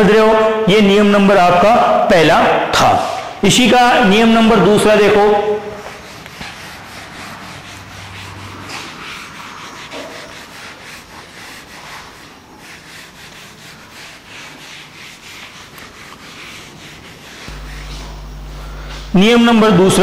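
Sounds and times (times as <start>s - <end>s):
duster rubbing on whiteboard: 4.1s - 20.0s.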